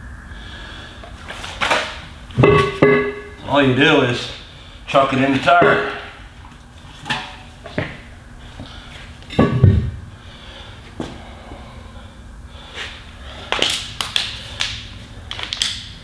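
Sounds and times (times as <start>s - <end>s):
heavy thud: 9.4s - 10.0s.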